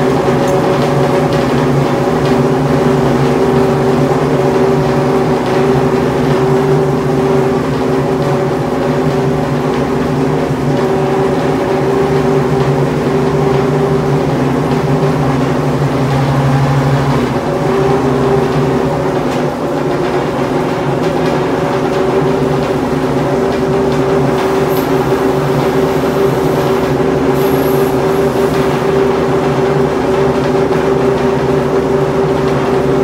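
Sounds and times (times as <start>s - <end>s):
race car engine idling: 24.2s - 29.6s.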